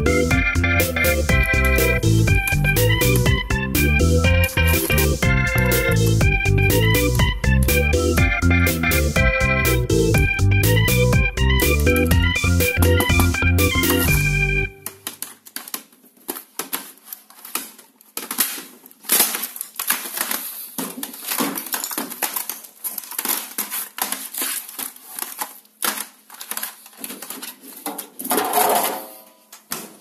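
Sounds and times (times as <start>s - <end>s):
plastic case knocking: 11.6s - 14.2s.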